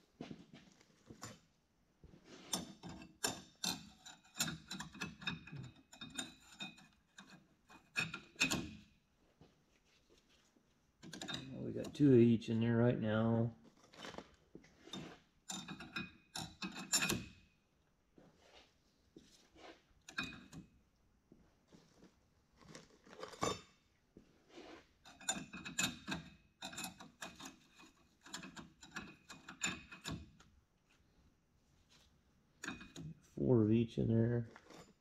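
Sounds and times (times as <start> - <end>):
metal plates clinking and scraping: 14.9 - 17.3.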